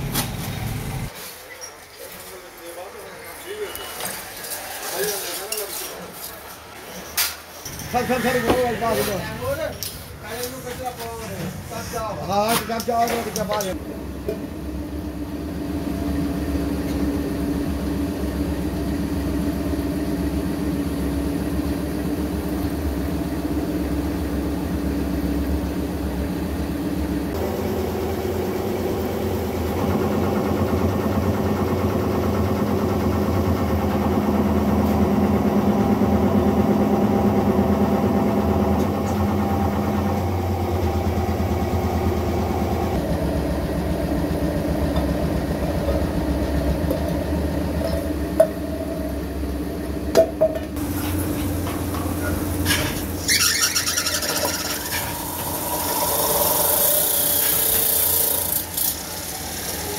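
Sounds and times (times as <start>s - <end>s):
hydraulic press droning: 50.8s - 59.9s.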